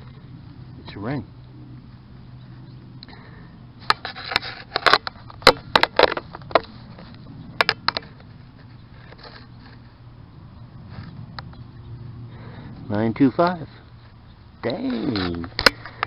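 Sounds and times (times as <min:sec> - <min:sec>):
digging tool crackles and knocks: 0:03.8 - 0:10.0, 0:13.4 - 0:16.0.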